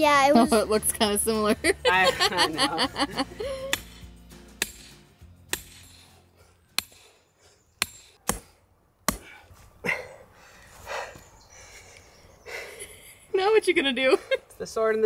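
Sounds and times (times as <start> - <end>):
hammer striking steel stake: 3.6 - 7.2, 7.8 - 9.4.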